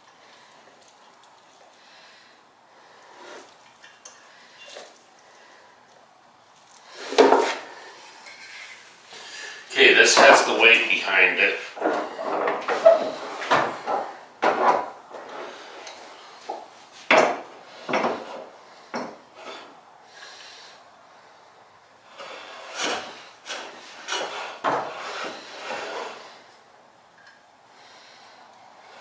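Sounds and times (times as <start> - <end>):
hand plane shaving wood: 22.1 - 26.5.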